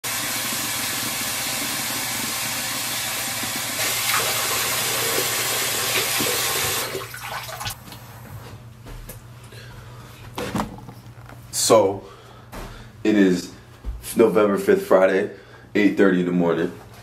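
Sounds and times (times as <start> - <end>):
water running from sink tap: 0.0 - 7.8.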